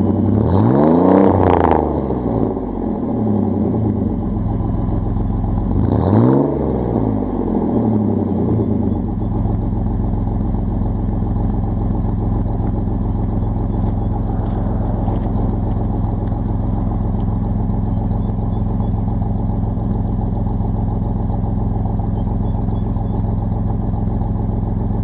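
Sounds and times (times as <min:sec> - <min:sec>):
truck engine idling: 0:08.1 - 0:25.0.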